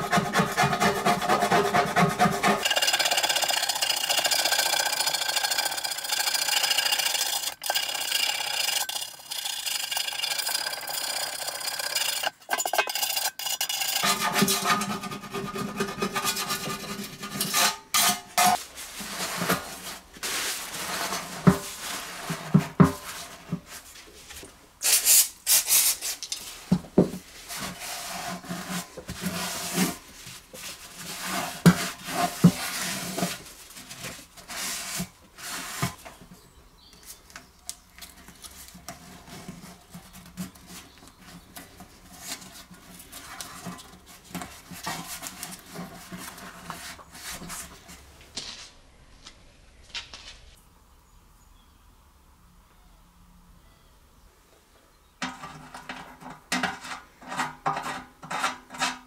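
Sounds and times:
tool scraping rust off steel: 0.0s - 20.0s, 55.2s - 59.0s.

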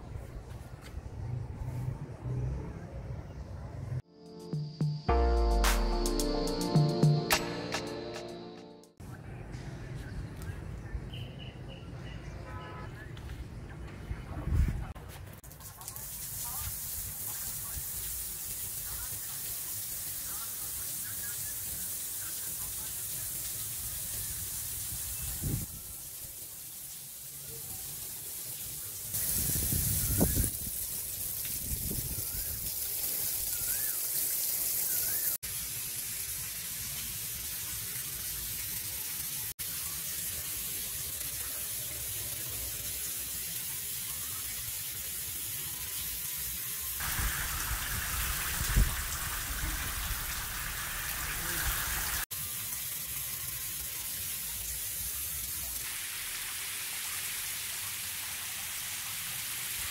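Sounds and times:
shower water splashing into tank: 15.2s - 59.9s.

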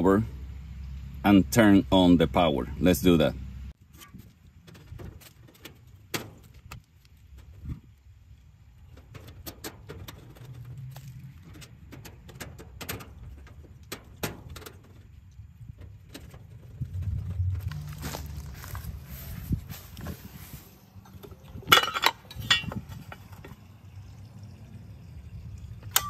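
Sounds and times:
metal panel clicks and rattles: 8.9s - 10.7s, 11.4s - 16.9s.

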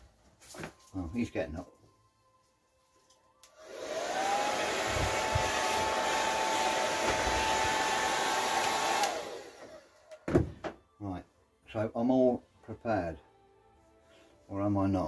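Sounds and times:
hair dryer running: 3.4s - 9.9s
hair dryer set down knock: 7.0s - 7.4s.

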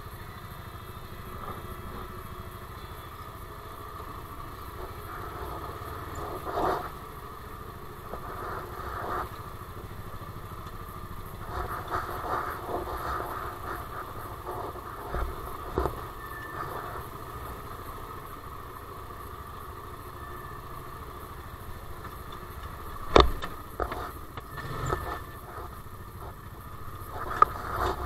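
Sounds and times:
vehicle engine running: 0.0s - 28.0s
vehicle knocking over rocks: 23.0s - 25.4s.

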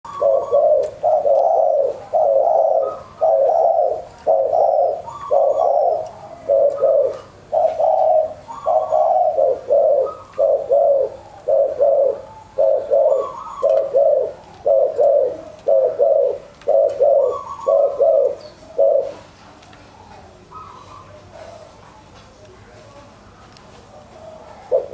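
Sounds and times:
doves cooing: 0.0s - 22.2s, 23.8s - 24.9s.

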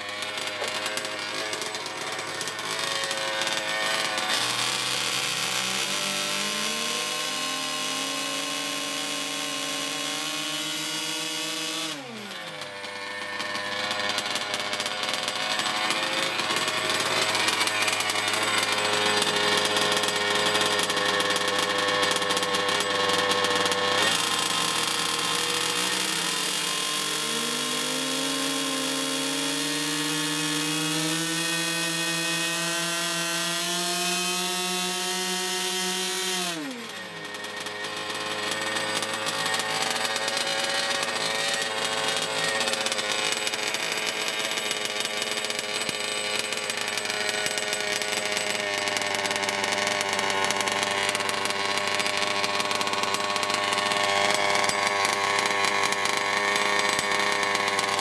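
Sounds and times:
model engine running: 0.0s - 58.0s.

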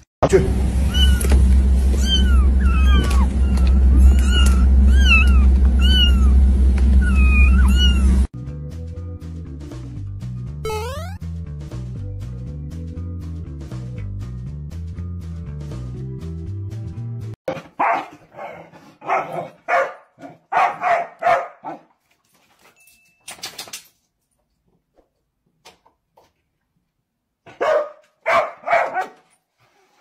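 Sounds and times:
dog barking: 17.8s - 21.9s, 27.4s - 29.2s.

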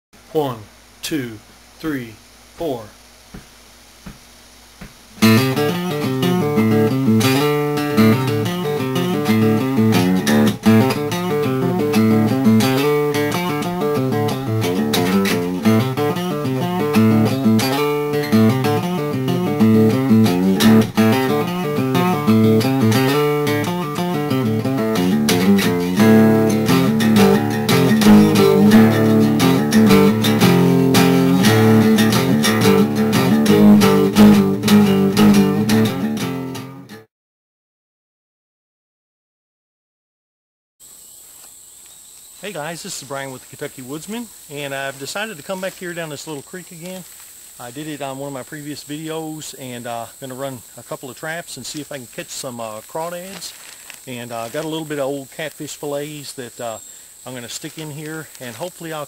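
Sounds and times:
bass line: 5.2s - 37.0s
plucked guitar notes: 5.2s - 37.1s.

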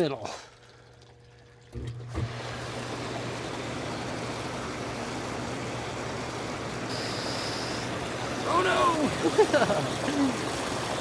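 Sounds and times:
bubbling churning water: 0.0s - 11.0s
pump humming: 0.0s - 11.0s
high steady whine: 2.8s - 9.8s.

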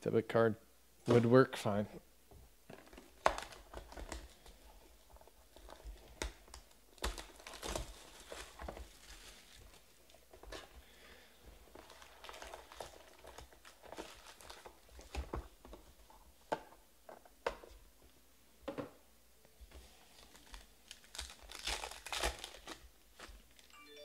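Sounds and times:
foil wrapper crinkling and tearing: 2.8s - 10.0s, 11.7s - 15.2s, 20.1s - 23.7s.

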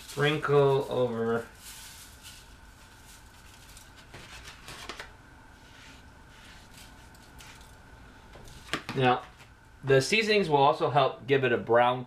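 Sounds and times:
rustling hand rubbing spice: 0.0s - 7.8s
faint steady hum: 0.0s - 12.0s.

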